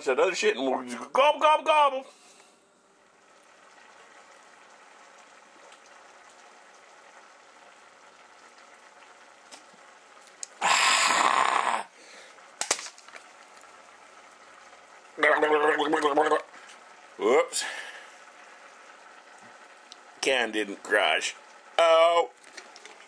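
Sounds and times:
faint steady hiss: 0.0 - 23.0
small tick: 10.2 - 10.6.

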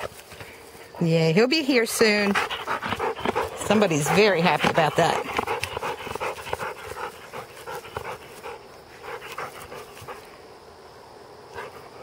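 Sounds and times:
dog panting: 1.9 - 10.4, 11.5 - 12.0.

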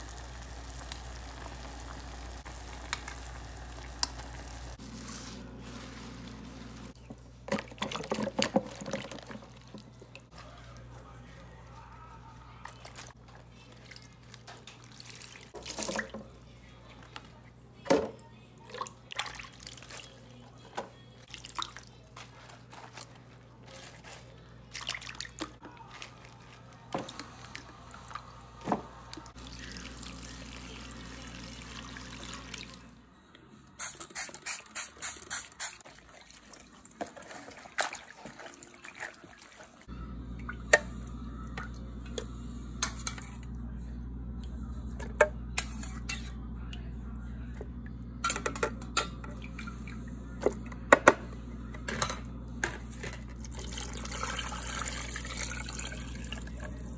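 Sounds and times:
steady low hum: 39.9 - 53.5.

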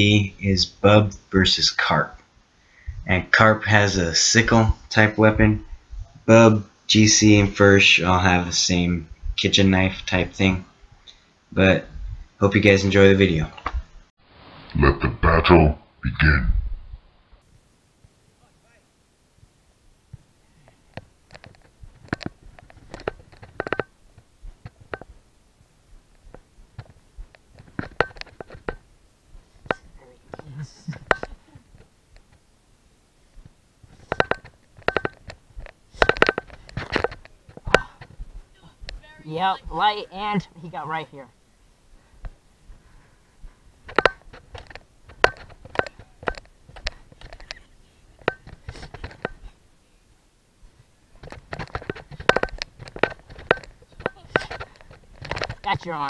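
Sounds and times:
sharp knocks and clacks: 20.9 - 24.0, 26.1 - 28.8, 33.9 - 38.2, 43.9 - 47.6, 51.2 - 55.9.

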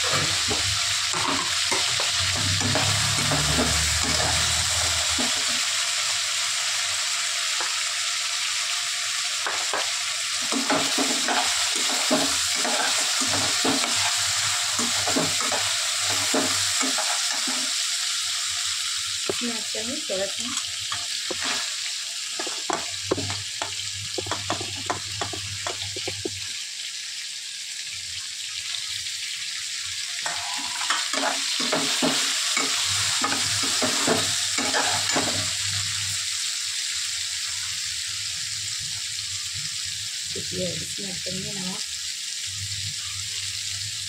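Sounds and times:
food sizzling in oil: 0.0 - 44.0
metal spoon scraping a pan: 0.1 - 5.5, 10.4 - 17.7, 20.5 - 26.3, 30.2 - 35.6.

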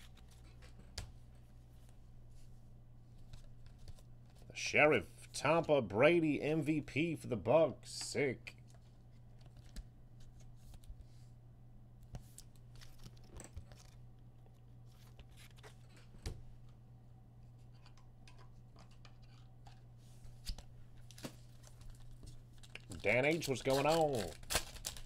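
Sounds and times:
steady low hum: 0.0 - 25.0
cards clicking and scraping: 17.6 - 22.0, 22.6 - 25.0.

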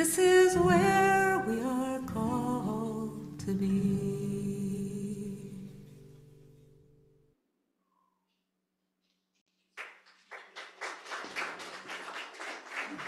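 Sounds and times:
congregation applauding: 9.6 - 13.0.

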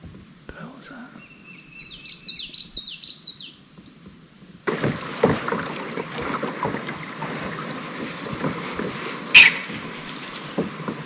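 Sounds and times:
water splashing against kayak hull: 4.0 - 11.0.

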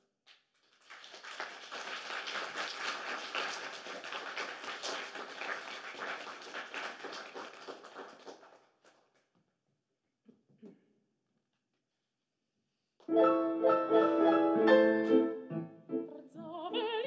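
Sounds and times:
audience applauding: 0.6 - 9.0.

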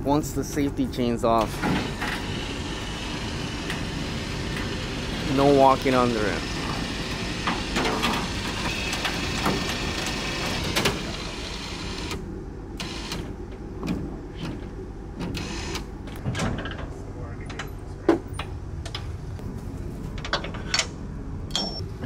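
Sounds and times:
generator hum: 0.0 - 22.0
lift gate motor running: 1.2 - 16.4.

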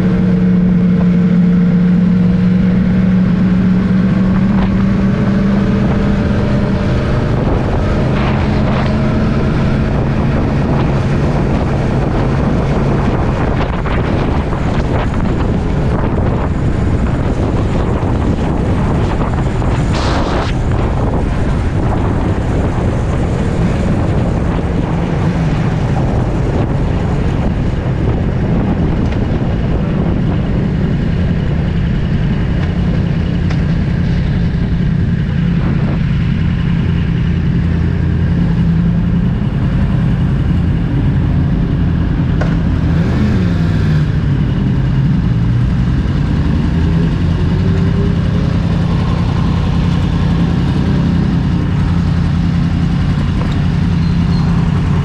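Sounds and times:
motorcycle engine running: 0.0 - 55.0
wind noise on microphone: 0.0 - 55.0.

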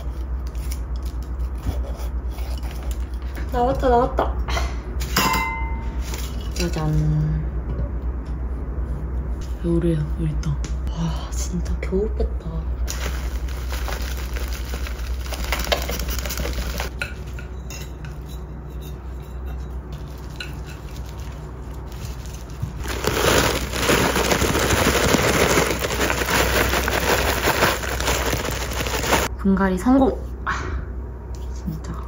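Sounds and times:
potting soil crackling rustle: 12.9 - 16.9, 20.8 - 29.3.

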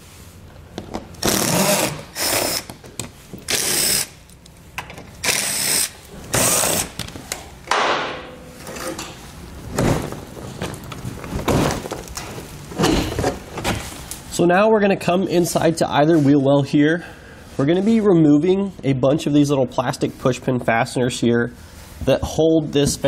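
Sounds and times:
power driver spinning screws: 1.2 - 2.7, 3.5 - 4.1, 5.2 - 6.9.

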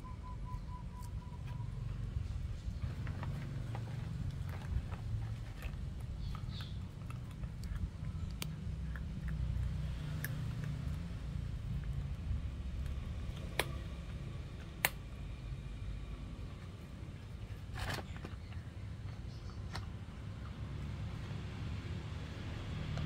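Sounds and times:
puppy chewing bones: 2.8 - 14.9.

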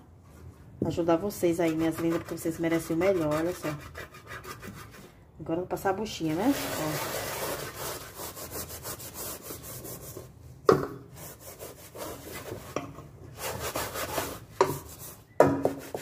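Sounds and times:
sponge scrubbing a metal pot: 1.4 - 4.8, 6.2 - 10.3, 11.2 - 16.0.

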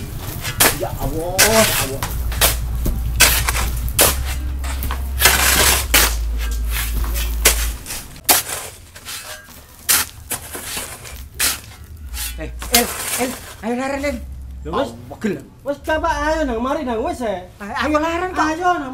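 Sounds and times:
shovel knocks: 0.0 - 13.6
shovels scraping through sand: 0.0 - 14.2.

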